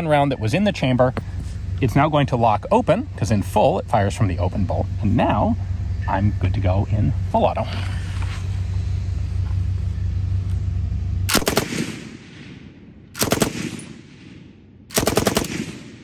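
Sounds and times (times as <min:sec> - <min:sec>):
machine gun firing bursts: 0:11.3 - 0:12.2, 0:13.2 - 0:14.3, 0:14.9 - 0:16.0.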